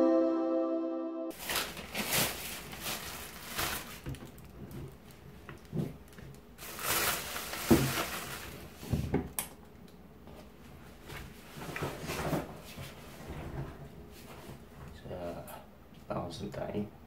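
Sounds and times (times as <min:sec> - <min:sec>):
plastic bag rustling: 0:01.3 - 0:09.0.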